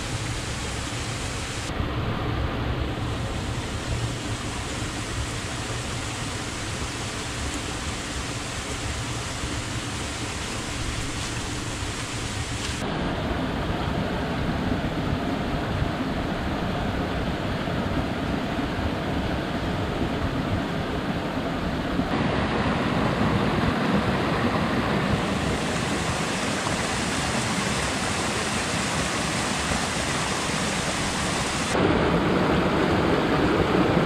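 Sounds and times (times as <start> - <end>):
rocky stream rushing: 22.1 - 34.0.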